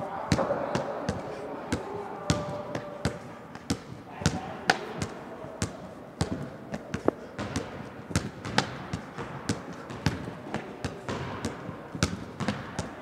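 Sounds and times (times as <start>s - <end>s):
basketball bouncing on wood floor: 7.4s - 13.0s.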